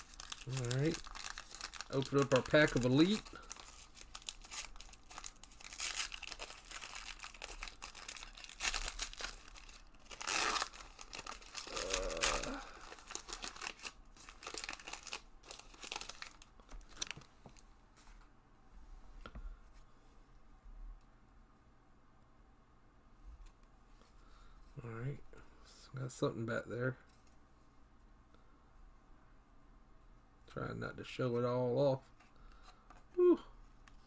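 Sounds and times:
cards rustling: 0.0s - 17.3s
foil wrapper crinkling and tearing: 0.0s - 17.3s.

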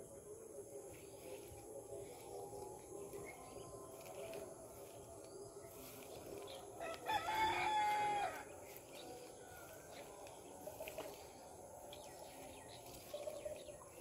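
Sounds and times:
rooster crowing: 6.8s - 8.5s.

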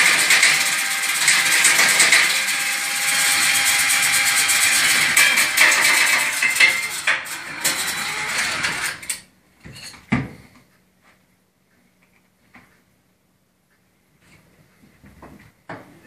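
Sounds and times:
cordless drill spinning: 0.0s - 9.2s
rod rattling and scraping in flue pipe: 0.0s - 9.2s.

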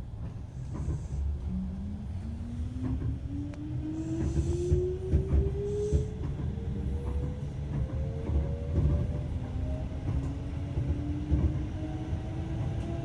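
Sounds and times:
wheels rumbling on rails: 0.0s - 13.0s.

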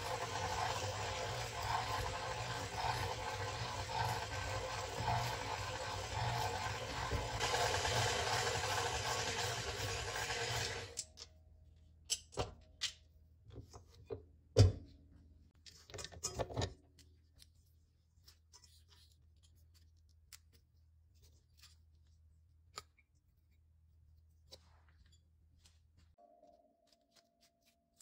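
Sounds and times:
stand mixer running: 0.0s - 11.0s.

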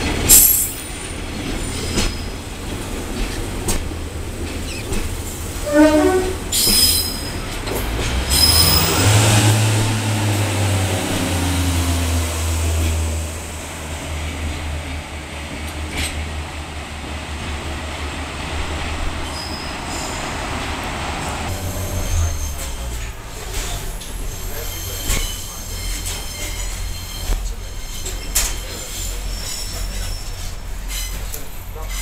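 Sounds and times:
high wheel squeals: 5.6s - 7.6s, 8.2s - 10.3s, 19.2s - 20.6s, 21.2s - 32.0s
diesel engine low drone: 7.6s - 24.6s.

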